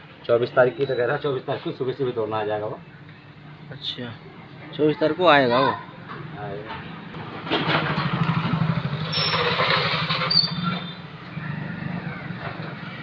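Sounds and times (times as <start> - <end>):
vehicle engine running: 7.1 - 13.0.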